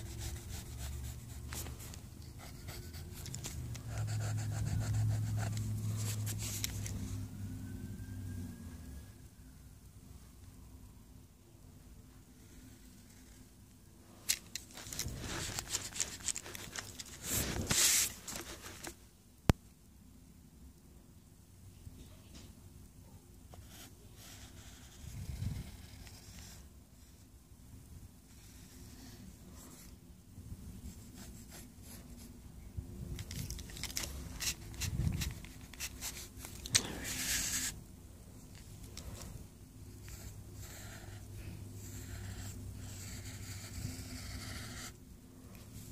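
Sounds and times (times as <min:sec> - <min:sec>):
paper rustling and crinkling: 0:14.3 - 0:19.0, 0:33.2 - 0:37.8.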